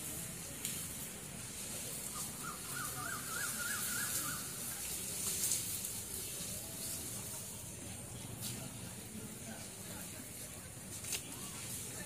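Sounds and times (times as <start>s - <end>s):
background hiss: 0.0s - 12.0s
bird whistling call: 2.1s - 4.6s.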